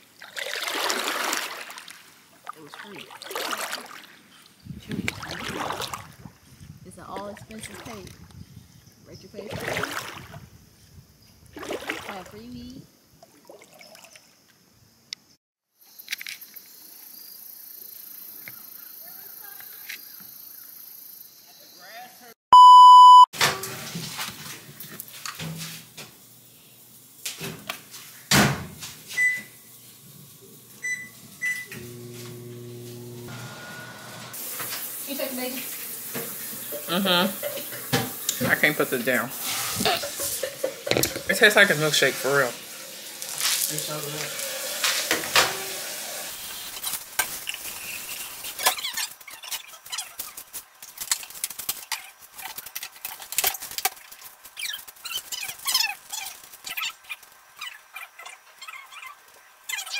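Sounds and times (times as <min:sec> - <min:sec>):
keypad beeps: 0:22.6 - 0:23.3
microwave oven humming: 0:30.8 - 0:34.4
kitchen utensils clattering: 0:36.2 - 0:46.0.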